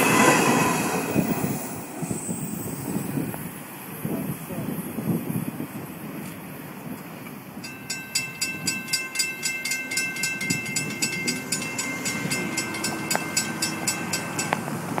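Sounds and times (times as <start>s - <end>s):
railroad crossing bell ringing: 7.6s - 15.0s.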